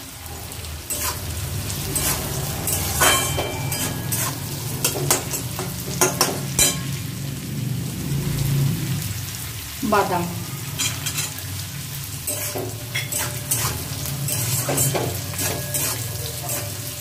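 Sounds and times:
vegetables sizzling in oil: 0.0 - 17.0
spatula scraping metal pan: 0.9 - 7.0, 10.7 - 11.5, 12.2 - 17.0.

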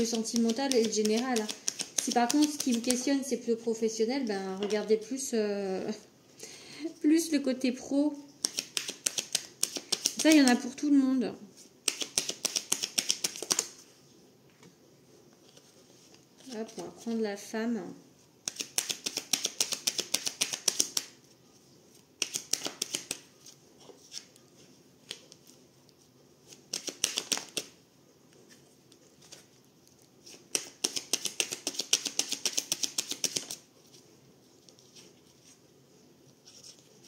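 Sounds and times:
cards being shuffled: 0.0 - 3.2, 8.4 - 10.7, 11.8 - 13.8, 18.4 - 21.2, 22.2 - 25.6, 26.5 - 27.8, 30.2 - 34.0.

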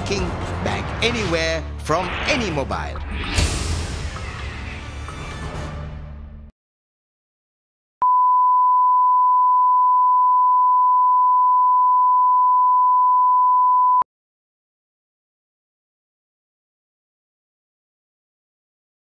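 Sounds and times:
commercial music: 0.0 - 6.5.

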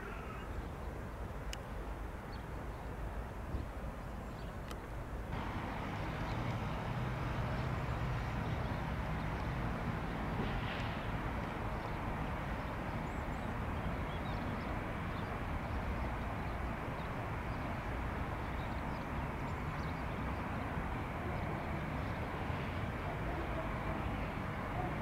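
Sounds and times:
jet engines rumbling: 5.4 - 25.0.

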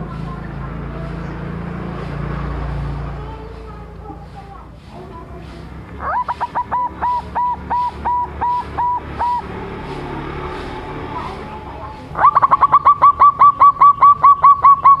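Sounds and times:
dove calling: 3.5 - 15.0.

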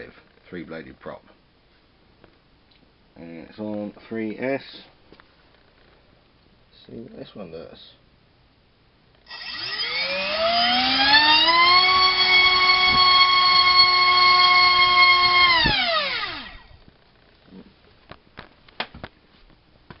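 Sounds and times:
electric motor high whine: 9.3 - 16.8.

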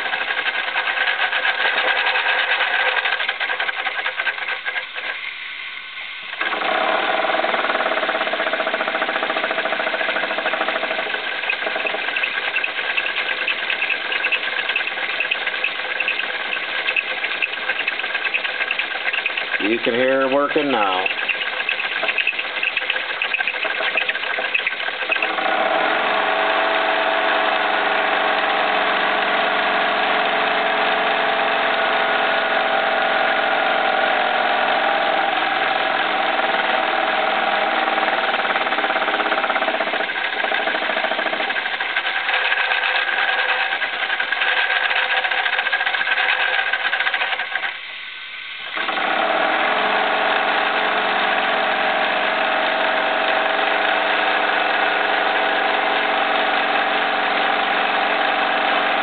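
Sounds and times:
steam engine whirring: 8.2 - 25.4, 38.4 - 47.9.

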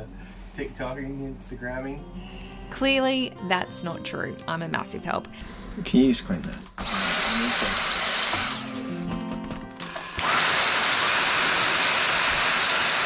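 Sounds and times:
handheld vacuum cleaner whine: 6.8 - 9.0, 9.8 - 13.0.

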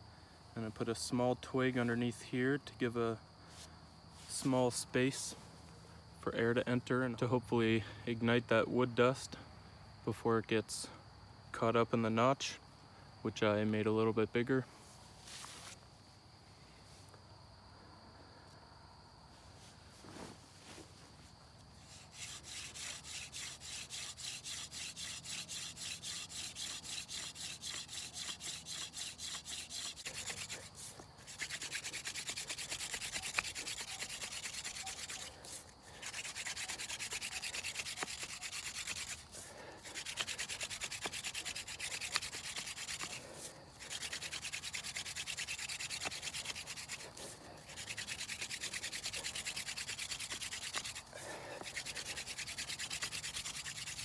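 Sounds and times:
hand drill rubbing on fireboard: 21.8 - 54.0.

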